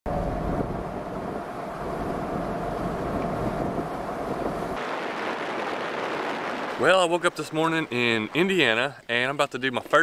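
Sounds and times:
car road noise: 0.1 - 8.5.

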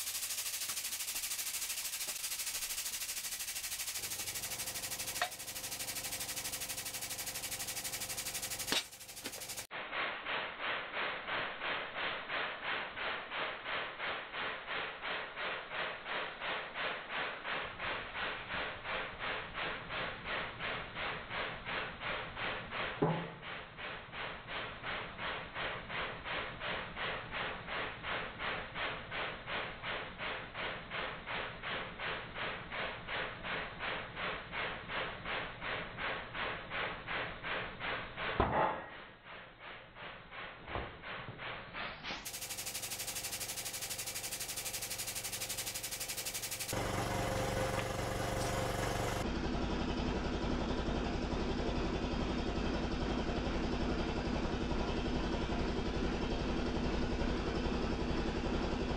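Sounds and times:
hydraulic press pulsing: 0.0 - 9.7, 41.1 - 58.9.

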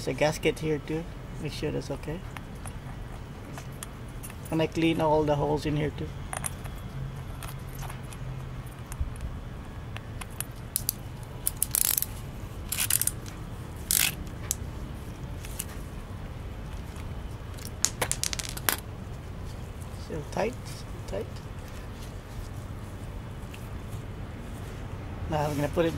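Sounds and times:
small metal parts clicking: 10.2 - 12.1, 12.7 - 14.6, 17.5 - 18.8.

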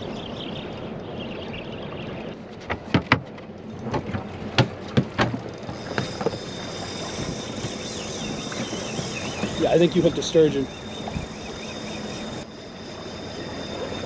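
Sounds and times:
wind and water noise: 0.0 - 14.0
sharp knocks and clicks on boat: 1.8 - 12.4.

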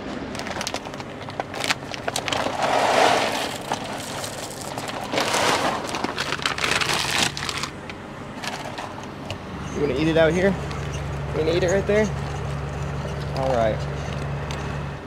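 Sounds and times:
dog food bag rustling: 0.3 - 7.8.

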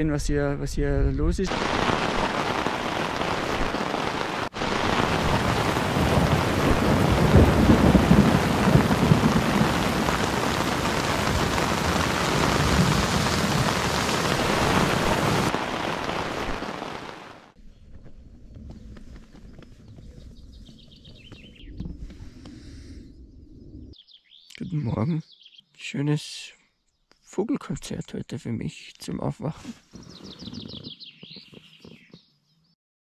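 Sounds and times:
thunder rumbling: 1.5 - 17.4
heavy rain pouring: 1.5 - 17.6.

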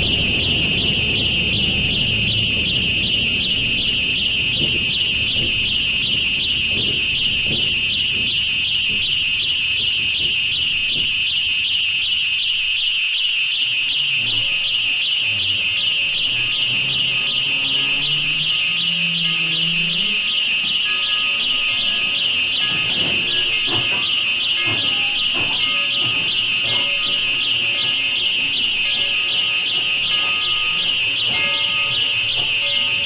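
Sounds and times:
low rumble: 0.0 - 8.3
low hums: 0.0 - 9.7
shrill pulsing alarm tone: 0.0 - 33.0.

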